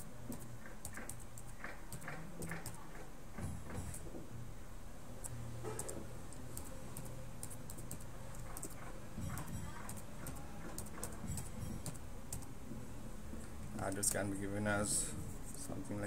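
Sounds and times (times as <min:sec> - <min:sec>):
keyboard typing clicks: 0:05.2 - 0:12.5.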